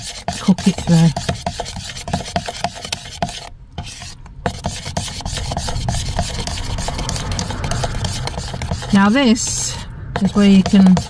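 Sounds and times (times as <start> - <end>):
metal spoon stirring batter in bowl: 0.0 - 11.0
low rumble: 3.5 - 11.0.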